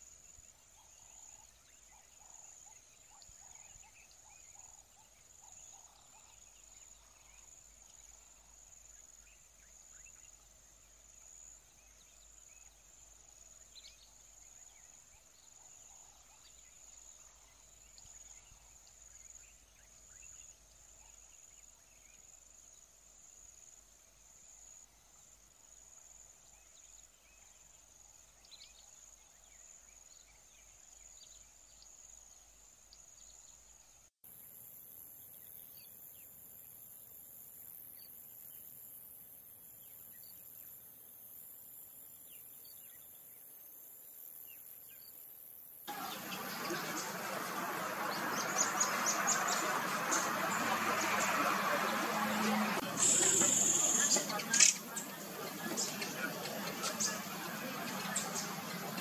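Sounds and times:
high-pitched insect drone: 0:52.9 - 0:54.8.

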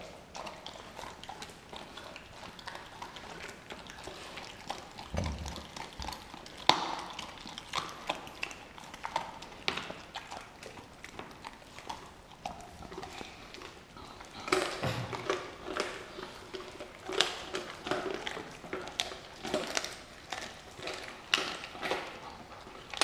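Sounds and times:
dogs chewing and tearing meat: 0:00.0 - 0:23.0
teeth and claws tapping: 0:00.4 - 0:23.0
dull thump: 0:05.1 - 0:05.6.

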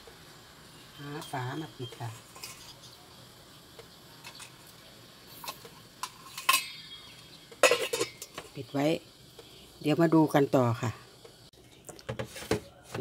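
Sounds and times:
metal kitchenware clinking: 0:01.2 - 0:03.0, 0:05.4 - 0:08.6
metal lid clattering: 0:01.9 - 0:02.9, 0:05.4 - 0:08.6.

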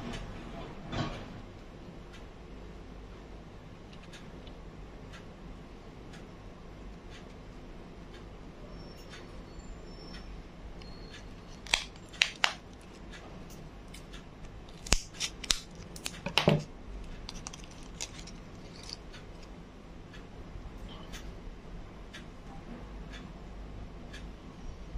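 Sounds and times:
scissors snipping plastic packaging: 0:11.5 - 0:13.0, 0:14.7 - 0:16.7.

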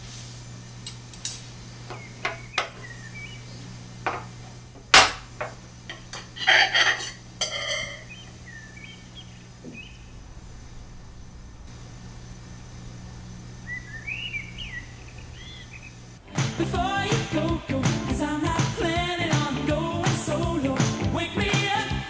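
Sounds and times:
knife and fork scraping on plate: 0:05.9 - 0:08.2.

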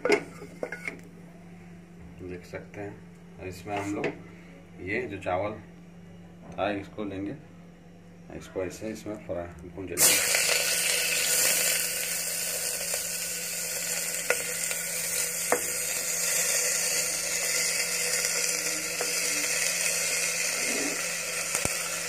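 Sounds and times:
rice sizzling in hot fat: 0:10.0 - 0:22.0.

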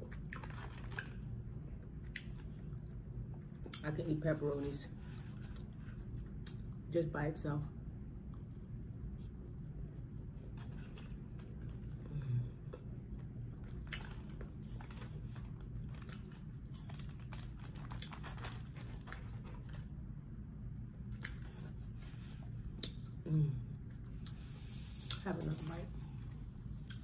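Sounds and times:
chewing: 0:00.0 - 0:01.4, 0:02.0 - 0:03.8, 0:12.7 - 0:19.9
steady low hum: 0:00.0 - 0:27.0.

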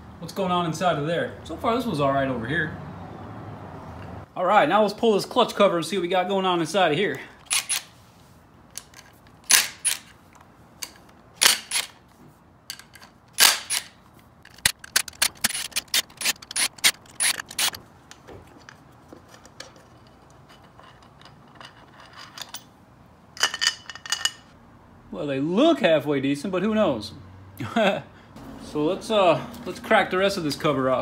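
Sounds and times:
ratchet wrench clicking: 0:07.4 - 0:07.9, 0:10.8 - 0:12.0, 0:12.7 - 0:13.9, 0:14.5 - 0:17.8.

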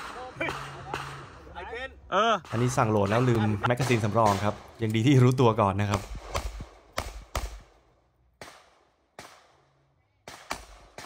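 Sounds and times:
pistol shots: 0:02.4 - 0:04.8, 0:05.8 - 0:11.0.

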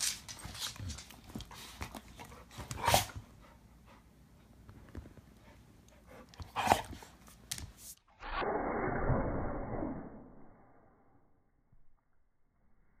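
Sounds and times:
dogs scuffling: 0:00.0 - 0:03.2.

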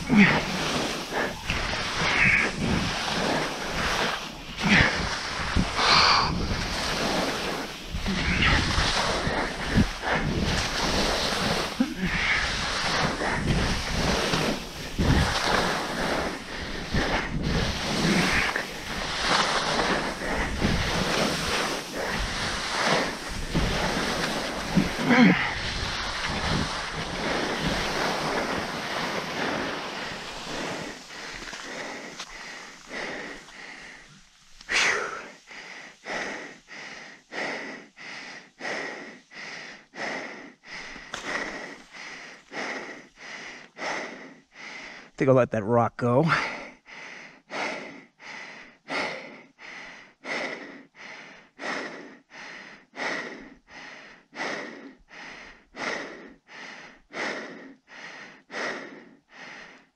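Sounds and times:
skis scraping on snow: 0:00.0 - 0:36.4
hard rhythmic breathing: 0:00.0 - 0:45.2, 0:46.3 - 0:59.9
wind buffeting microphone: 0:01.2 - 0:34.0.

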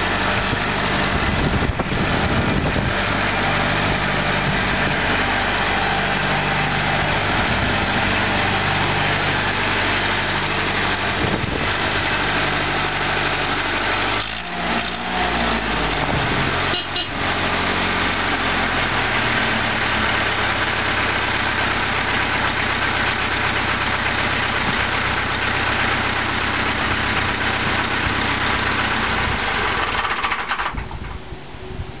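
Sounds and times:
tractor diesel engine running: 0:00.0 - 0:32.0.

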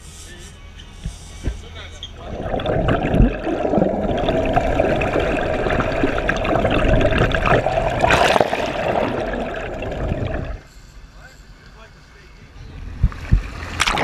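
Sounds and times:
muffled underwater rush: 0:02.2 - 0:10.6
crackling bubbles: 0:02.2 - 0:10.7.

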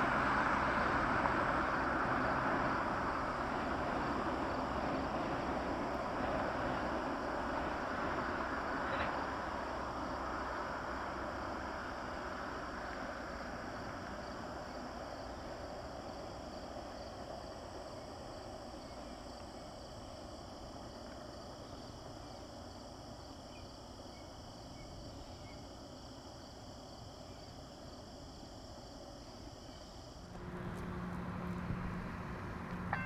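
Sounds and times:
insects trilling: 0:01.5 - 0:33.0
distant noise: 0:30.3 - 0:33.0.

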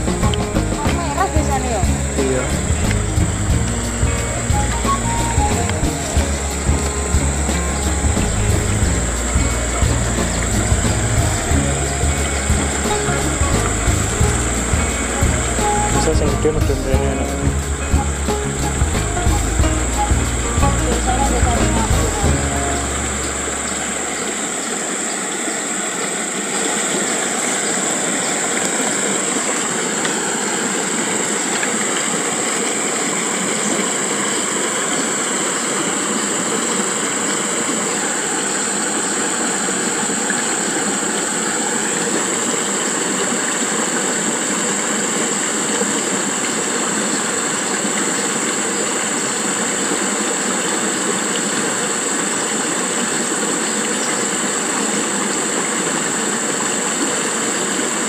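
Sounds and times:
high-pitched drone: 0:00.0 - 0:25.8
continuous rushing hiss: 0:00.0 - 0:58.0.

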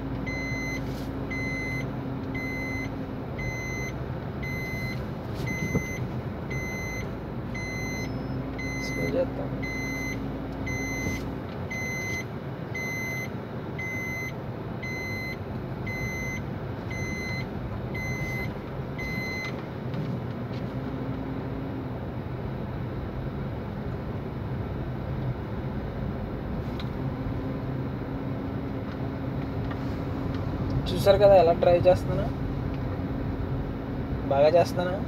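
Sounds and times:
car engine and road noise: 0:00.0 - 0:35.0
dashboard warning beeps: 0:00.2 - 0:19.6.

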